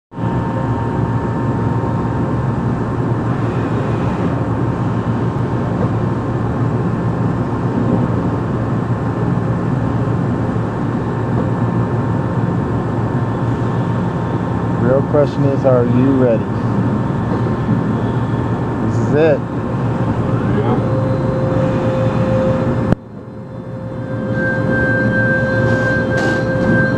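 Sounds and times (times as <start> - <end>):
high whine tones: 0.1 - 7.4, 11.0 - 26.9
machine hum: 16.5 - 26.9.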